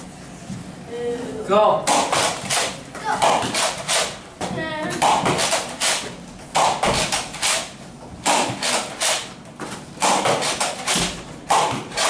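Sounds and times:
foam balls hitting and bouncing: 6.4 - 7.4, 9.6 - 12.0
toy blaster pumped and fired: 8.2 - 9.3, 10.0 - 12.0.

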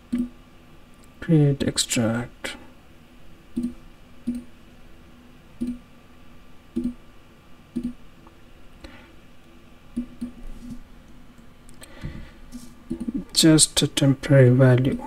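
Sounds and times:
computer mouse clicks: 3.6 - 4.5, 5.6 - 5.8, 6.8 - 7.0, 7.8 - 8.0, 10.0 - 10.4, 12.5 - 13.2.

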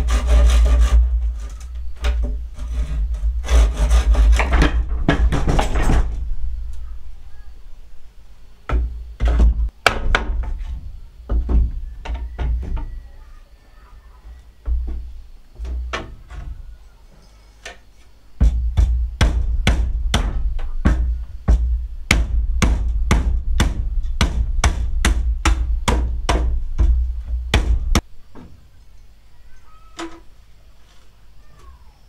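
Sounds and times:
scattered knocks: 3.5 - 6.3, 18.4 - 28.5.

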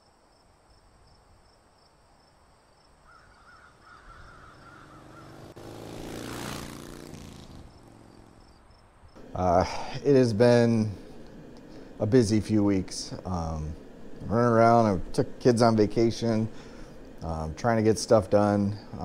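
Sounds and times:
birds calling: 3.0 - 17.5
rushing sound with low hum: 9.2 - 19.0.

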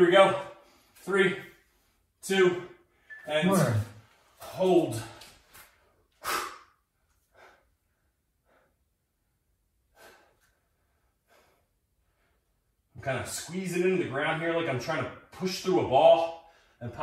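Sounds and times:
person breathing hard: 6.2 - 9.0, 9.9 - 12.6.

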